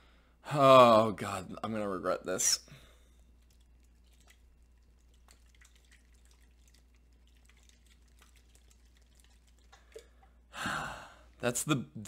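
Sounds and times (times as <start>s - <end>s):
juice sloshing in can: 3.3s - 10.4s.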